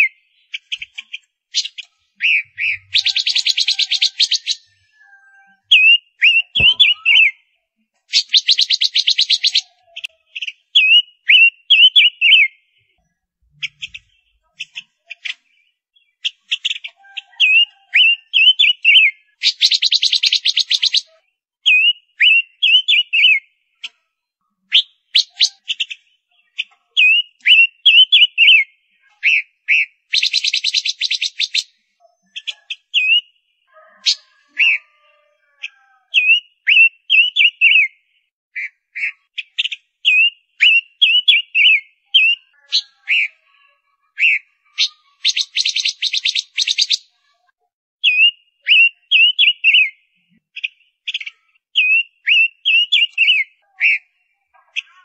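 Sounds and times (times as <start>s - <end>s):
bird whistled calls: 1.6s - 7.5s, 8.1s - 9.7s, 10.4s - 12.6s, 16.5s - 21.1s, 24.7s - 26.0s, 27.0s - 28.7s, 29.3s - 35.1s, 36.2s - 38.0s, 38.6s - 43.3s, 44.2s - 47.1s, 48.0s - 50.0s, 50.6s - 54.0s
bird sharp chips: 5.8s - 7.4s.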